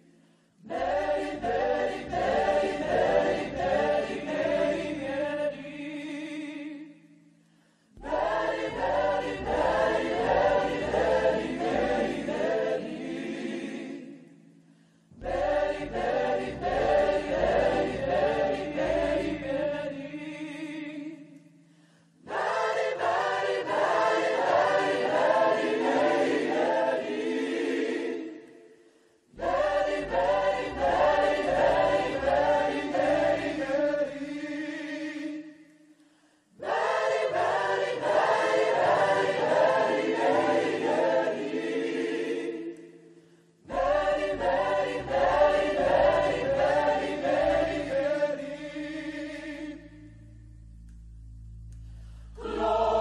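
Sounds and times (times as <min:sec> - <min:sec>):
large choir singing: 0:00.0 - 0:07.0, 0:08.0 - 0:14.5, 0:15.2 - 0:21.4, 0:22.2 - 0:35.7, 0:36.6 - 0:50.1, 0:52.4 - 0:53.0.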